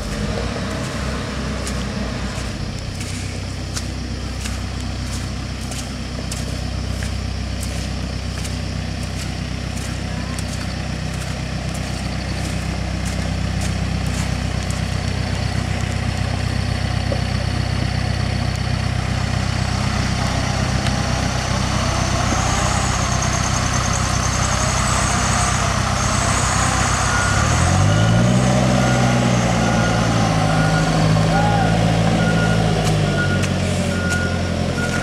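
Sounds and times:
heavy diesel engines running: 0.0s - 35.0s
reversing alarm beeping: 21.0s - 35.0s.

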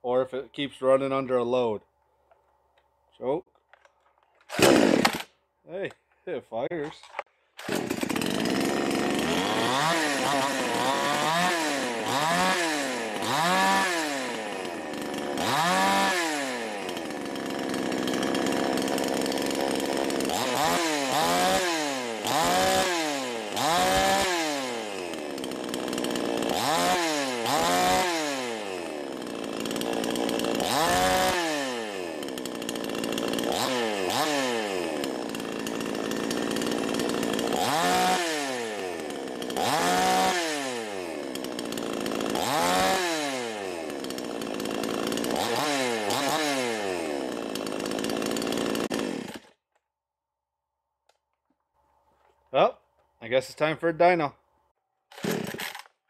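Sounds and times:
chainsaw engine revving: 4.5s - 5.3s, 7.1s - 49.6s, 55.1s - 56.0s.

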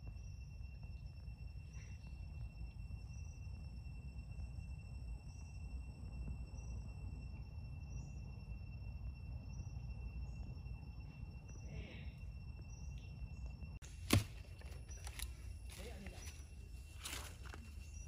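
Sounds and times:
crickets and insects chorus: 0.0s - 18.0s
low background rumble: 0.0s - 18.0s
short higher insect call: 0.0s - 18.0s.

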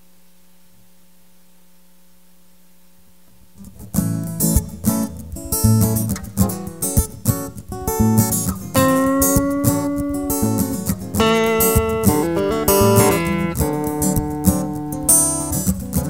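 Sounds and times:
faint steady hum: 0.0s - 16.0s
acoustic guitar strumming: 3.6s - 16.0s.

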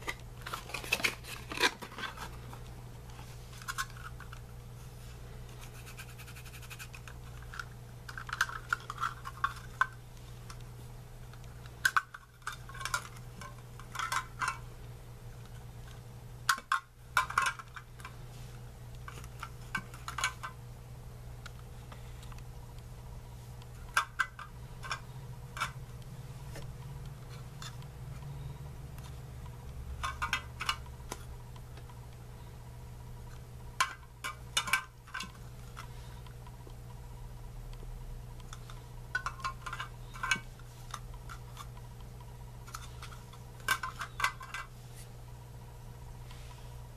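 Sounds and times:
steady low hum: 0.0s - 46.9s.

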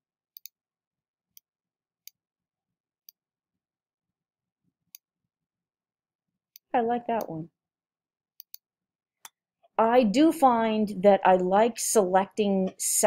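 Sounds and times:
computer mouse clicks: 8.4s - 8.6s.

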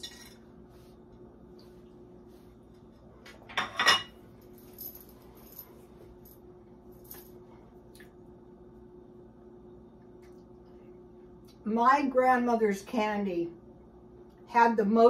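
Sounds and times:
low steady hum: 0.0s - 15.0s
plate clattering on tiled counter: 3.5s - 4.2s.

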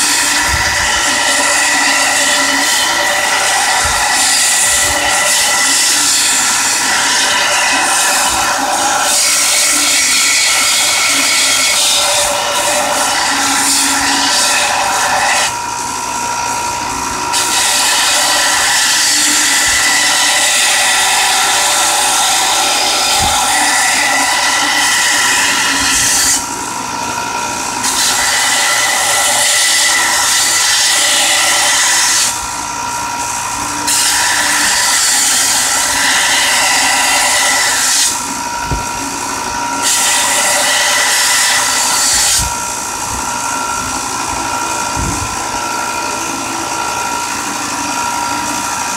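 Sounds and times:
blade grinding on sander belt: 0.0s - 15.6s, 17.2s - 26.5s, 27.8s - 32.4s, 33.8s - 42.6s.

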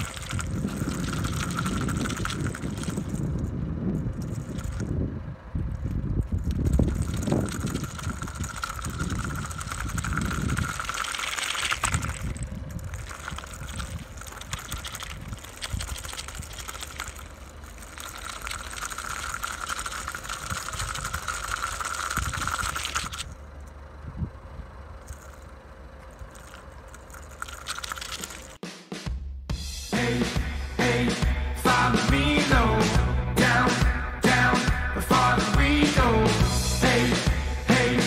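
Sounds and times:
wheels crunching over wet asphalt: 0.0s - 28.6s
low rumble: 29.9s - 38.0s.

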